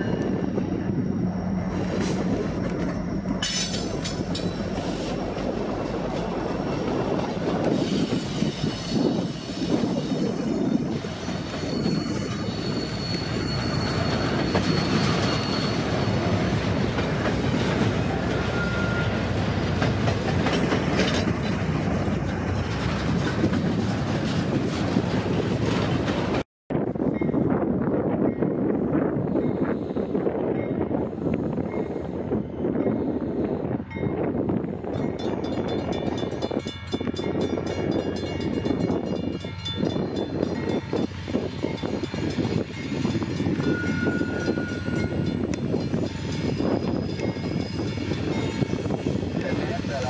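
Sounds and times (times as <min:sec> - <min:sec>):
high wheel squeal: 0:07.5 - 0:16.8, 0:17.4 - 0:19.3, 0:40.8 - 0:49.8
train wheels clattering over rails: 0:11.1 - 0:26.4.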